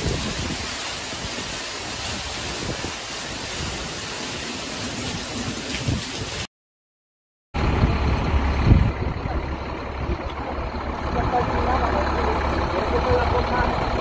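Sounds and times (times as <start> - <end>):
wind and heavy rain: 0.0 - 6.5, 7.6 - 14.0
truck engine rumbling: 7.6 - 14.0.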